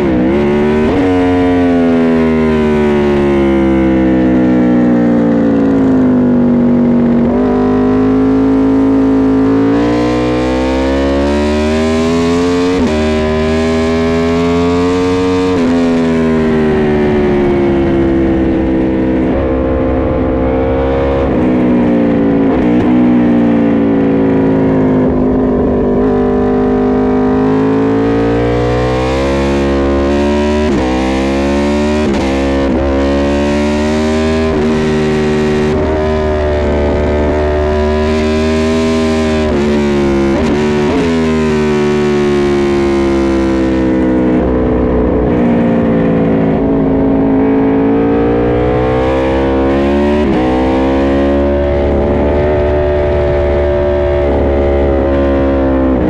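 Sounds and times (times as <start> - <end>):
motorcycle engine revving hard: 0.0 - 56.0
wind rush: 16.7 - 24.0.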